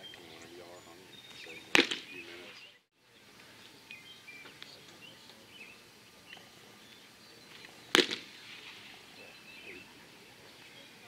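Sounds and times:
birds chirping faintly: 0.0 - 11.0
sharp smack: 1.7 - 2.2, 7.9 - 8.7.

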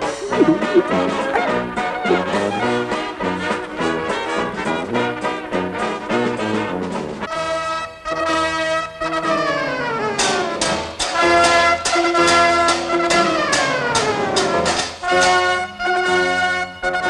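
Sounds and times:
brass circus music: 0.0 - 10.4.

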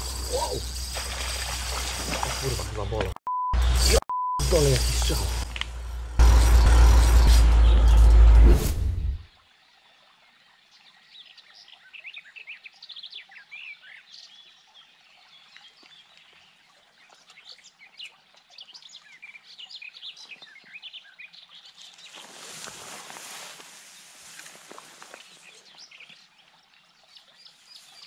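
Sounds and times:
songbirds chirping and singing: 10.0 - 22.9.

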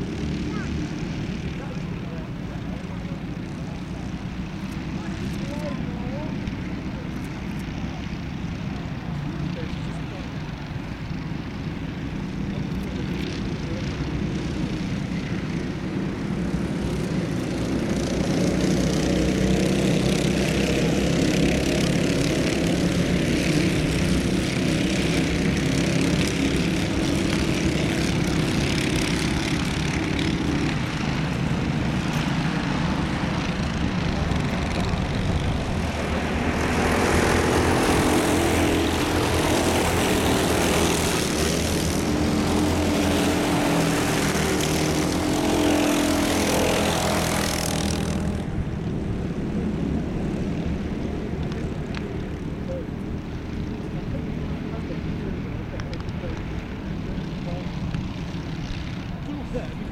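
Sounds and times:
racing kart engines buzzing: 0.0 - 59.9.

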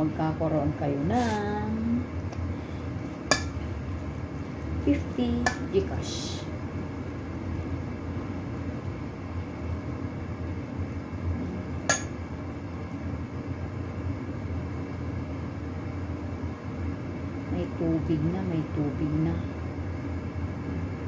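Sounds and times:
low background rumble: 0.0 - 21.0.

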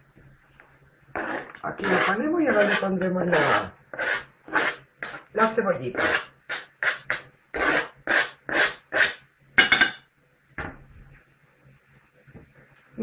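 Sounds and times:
utensil scraping a dish: 1.2 - 9.9.

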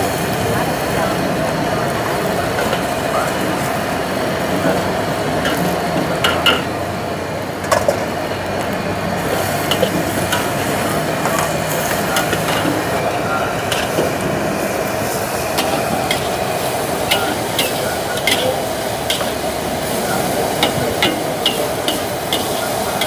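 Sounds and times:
rushing noise of stir-frying: 0.0 - 23.0
spatula clanking against wok: 5.4 - 6.8, 9.4 - 12.8, 15.6 - 16.4, 17.1 - 19.5, 20.5 - 23.0.

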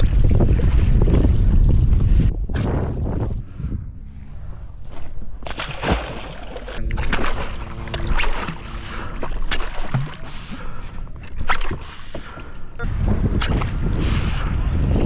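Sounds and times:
water splashing and sloshing: 0.0 - 15.0
sharp splashes and knocks: 5.4 - 12.3.

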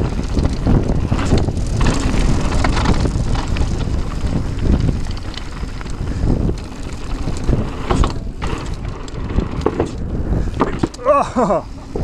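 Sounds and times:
bike clicks and rattles: 0.0 - 12.0
tyres rumbling on gravel: 0.0 - 12.0
wind rushing over microphone: 0.0 - 12.0.

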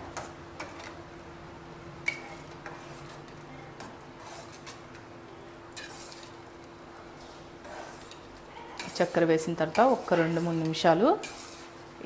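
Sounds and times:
metal spatula scraping steel pot: 2.0 - 4.9, 5.7 - 6.4, 7.2 - 11.9.

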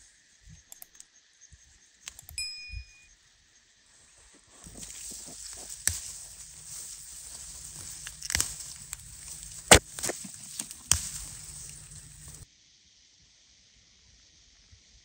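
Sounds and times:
footsteps through wheat field: 3.9 - 12.4
stalks rustling: 4.2 - 12.4
sharp crunches: 4.6 - 12.4.

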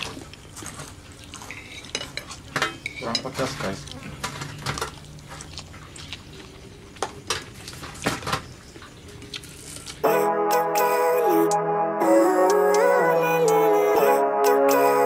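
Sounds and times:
spoons clinking on plates: 1.5 - 3.8
background music: 10.0 - 15.0.

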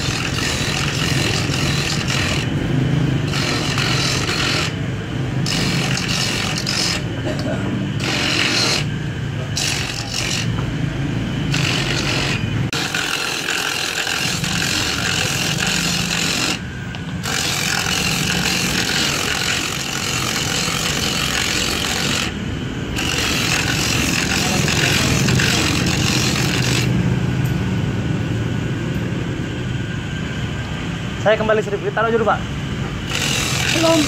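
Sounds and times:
coconut grater rasping scrape: 0.0 - 2.6, 3.2 - 4.8, 5.5 - 10.6, 11.5 - 16.6, 17.2 - 22.4, 23.0 - 26.9, 33.1 - 34.0
motor hum: 0.0 - 31.2, 32.4 - 34.0.

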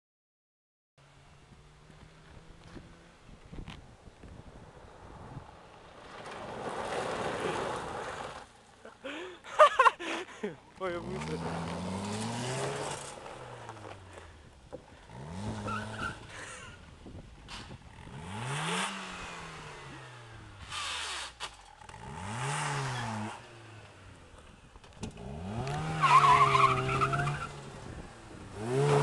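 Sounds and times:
gravel and tyre noise: 1.0 - 29.0
car engine revving: 10.9 - 14.3, 14.9 - 16.7, 17.9 - 29.0.

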